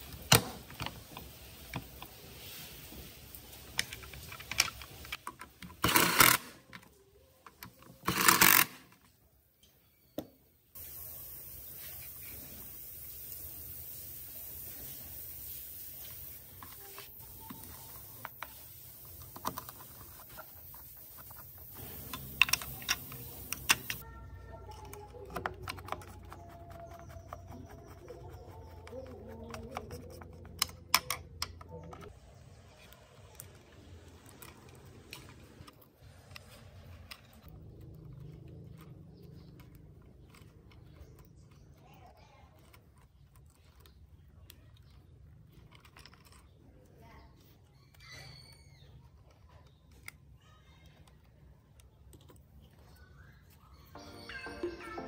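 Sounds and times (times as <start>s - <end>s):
parts and wires handled: 0.0s - 9.2s, 16.1s - 28.0s
screwdriver clicking on metal: 3.9s - 6.6s, 7.5s - 9.0s, 21.2s - 24.0s.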